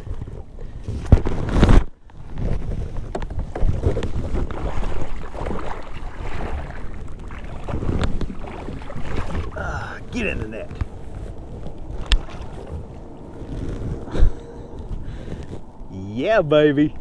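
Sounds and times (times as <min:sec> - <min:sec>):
wind on microphone: 0:00.0 - 0:17.0
fish splashing in a net: 0:04.4 - 0:09.6.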